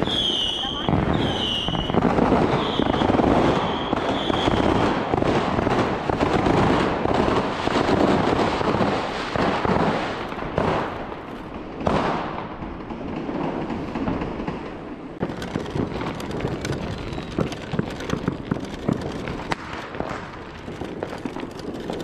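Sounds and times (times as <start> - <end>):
fireworks whistling: 0.0 - 11.0, 15.2 - 22.0
firecrackers crackling: 0.0 - 22.0.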